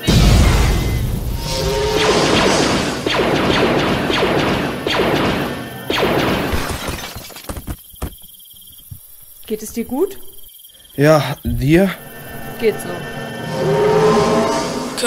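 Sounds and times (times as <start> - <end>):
crashes and thuds: 6.2 - 8.3
film music: 11.5 - 15.0.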